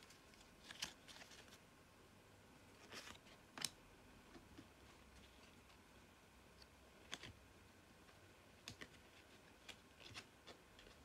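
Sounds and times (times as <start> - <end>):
cards clicking and tapping: 8.6 - 11.0.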